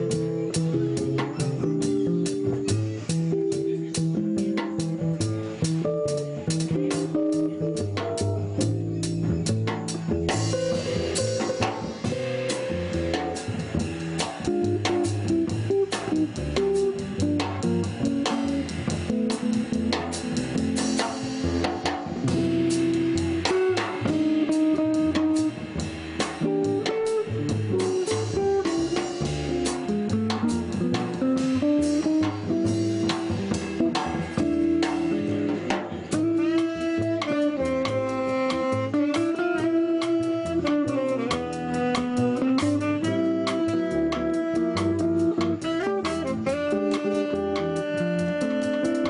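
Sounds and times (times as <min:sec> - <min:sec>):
drum kit with cymbals: 0:00.0 - 0:49.0
jazz guitar melody: 0:00.0 - 0:49.0
walking upright bass: 0:00.0 - 0:49.0.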